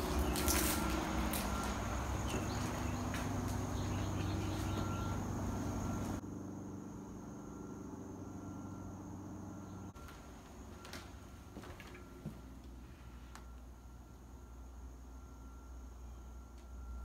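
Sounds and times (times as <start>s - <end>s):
high-pitched insect drone: 0.0s - 9.9s
low steady hum: 0.0s - 17.0s.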